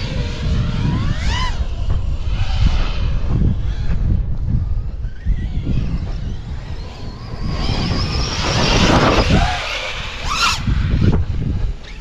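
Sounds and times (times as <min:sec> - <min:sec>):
electric motor whining: 0:00.0 - 0:12.0
wind on microphone: 0:00.0 - 0:12.0.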